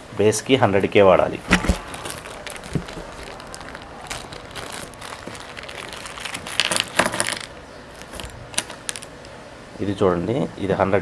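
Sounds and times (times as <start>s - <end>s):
plastic packet crinkling: 1.4s - 9.2s.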